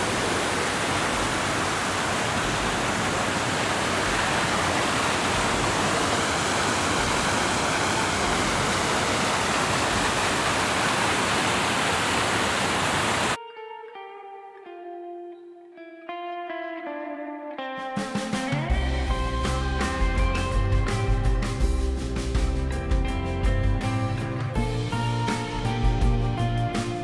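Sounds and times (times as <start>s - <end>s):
creek rushing over rocks: 0.0s - 13.4s
plucked guitar music: 13.4s - 27.0s.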